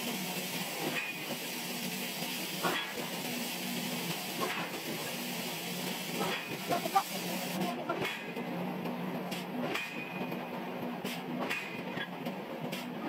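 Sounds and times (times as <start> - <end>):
machinery hissing: 0.0 - 7.9.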